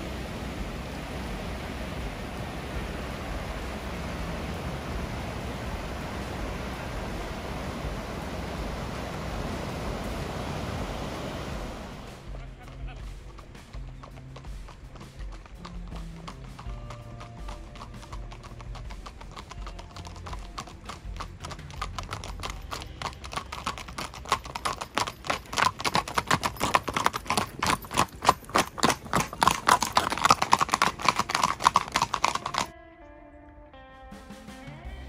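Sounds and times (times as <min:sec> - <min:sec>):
horse hooves clip-clopping on pavement: 0:00.0 - 0:32.7
guitar music: 0:12.0 - 0:25.5, 0:32.7 - 0:35.0.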